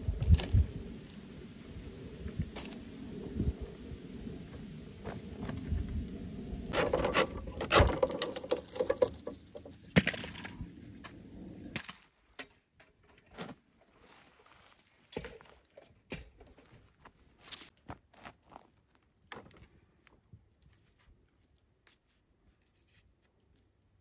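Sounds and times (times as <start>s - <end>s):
wood rustling and scraping: 4.4s - 12.0s.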